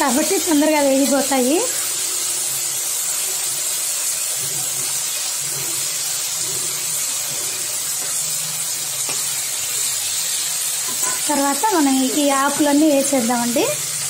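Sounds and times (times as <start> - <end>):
vegetables sizzling in oil: 0.0 - 14.0
spatula stirring in wok: 3.8 - 13.1.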